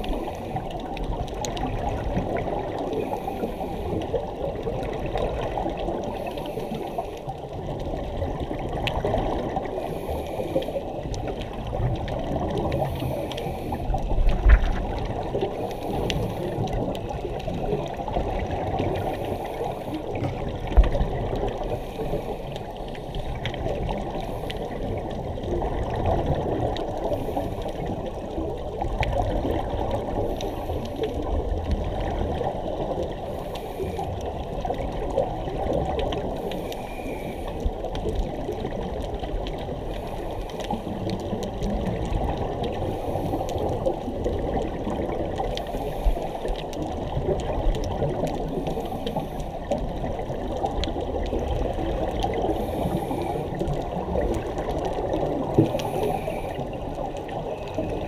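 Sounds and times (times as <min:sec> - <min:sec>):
diver breathing bubbles: 0:00.0 - 0:58.0
underwater water rush: 0:00.0 - 0:58.0.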